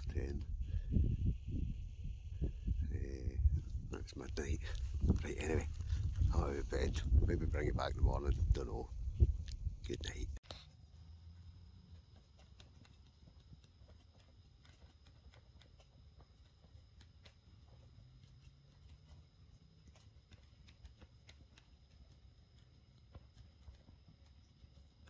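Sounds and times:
faint irregular ticks: 9.4 - 25.0.

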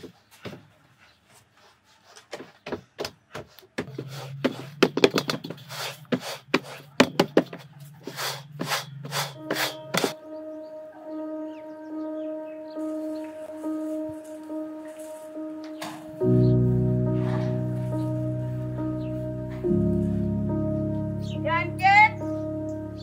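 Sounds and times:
background music held tone: 7.7 - 23.0.

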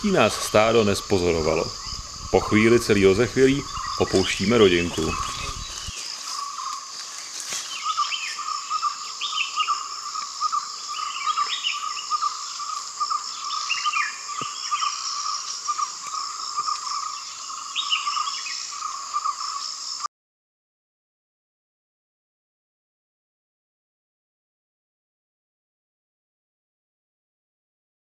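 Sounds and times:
bird falling calls: 0.0 - 19.6
insect high buzz: 0.0 - 20.1
insect pulsing trill: 0.0 - 20.1.

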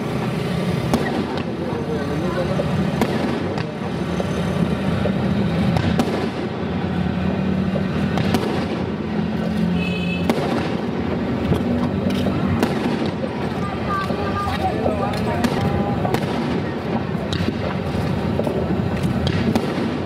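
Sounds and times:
continuous background din: 0.0 - 20.0
fireworks bursting: 0.0 - 20.0.

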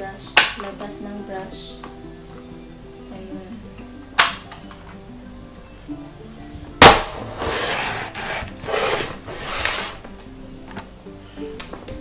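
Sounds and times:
background music: 0.0 - 12.0
sharp plastic click: 4.2 - 4.6
hard plastic parts scraping: 7.2 - 10.9.

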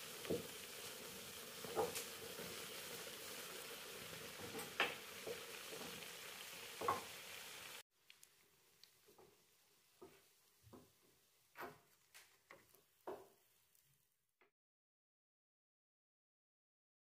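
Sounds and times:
dough sizzling in hot oil: 0.0 - 10.8.

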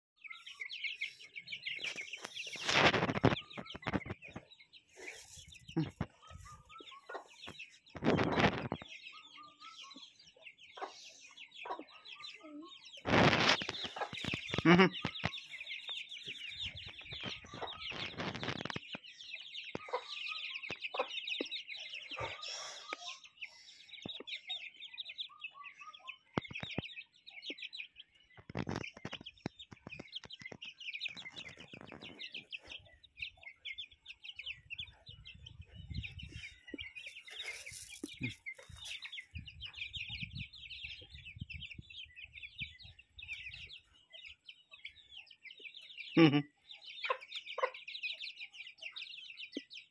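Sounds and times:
chicks cheeping: 0.2 - 49.9
hens clucking: 0.6 - 19.0.

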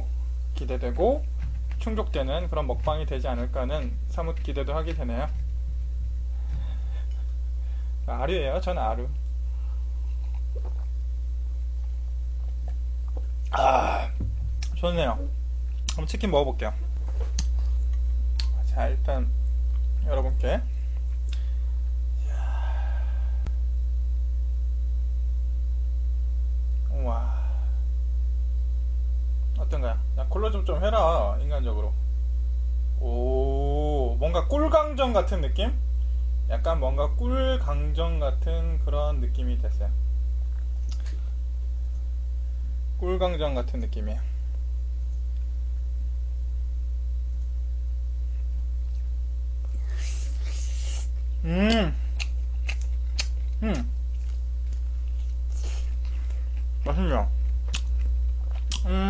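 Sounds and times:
electrical mains hum: 0.0 - 59.0
breathy sigh: 21.3 - 23.6, 27.1 - 27.8.

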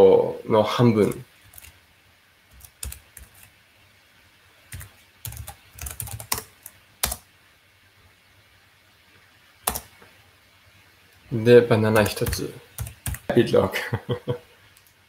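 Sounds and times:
typing on computer keyboard: 1.0 - 1.8, 2.5 - 3.5, 4.7 - 7.2, 9.7 - 9.9, 12.0 - 13.3.

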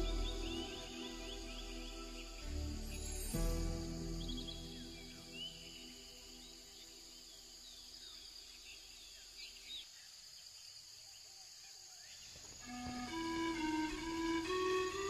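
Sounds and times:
melodic music: 0.0 - 6.0, 12.7 - 15.0
bird chirps: 0.0 - 10.2
soft held music notes: 12.6 - 15.0.

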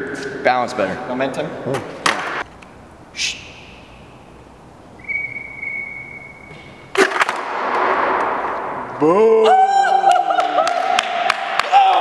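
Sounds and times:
high squeal: 5.0 - 6.9.

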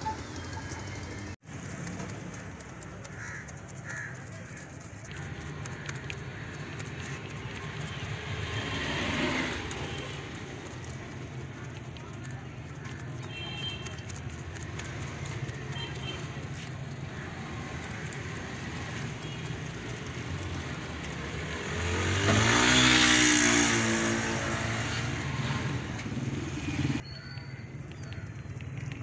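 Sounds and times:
vehicle engine passing by: 5.1 - 13.1, 16.6 - 27.0.

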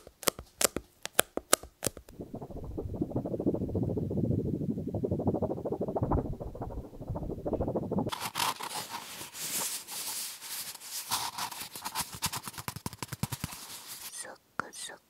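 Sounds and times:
scratching and tapping hard object: 0.0 - 2.2, 6.0 - 14.1
muffled low rubbing: 2.1 - 11.0.

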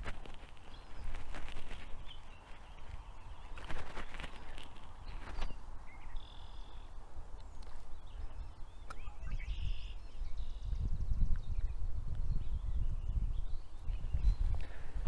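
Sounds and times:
rustling and small clicks: 0.0 - 5.6
high bird calls: 0.0 - 15.0.

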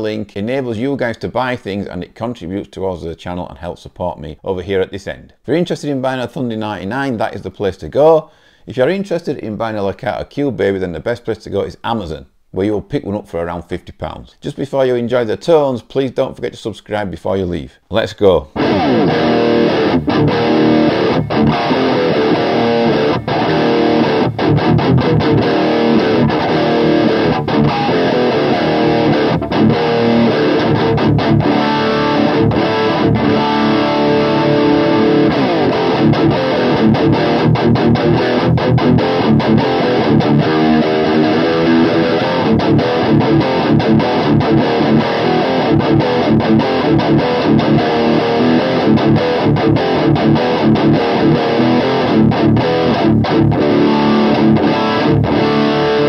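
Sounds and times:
electric guitar riffing: 18.6 - 56.0.

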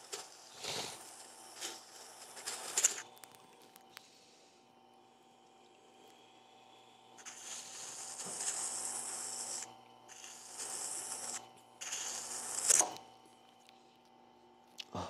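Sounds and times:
grinder motor hum: 6.8 - 13.3
metal grinding rasping hiss: 7.2 - 13.0.

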